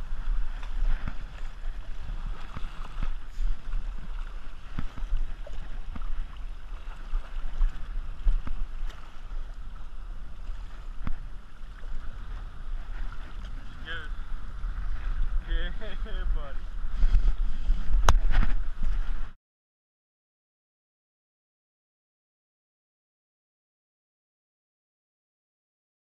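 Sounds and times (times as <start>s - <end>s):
water splashing and sloshing: 0.0s - 19.4s
wind buffeting microphone: 0.0s - 19.4s.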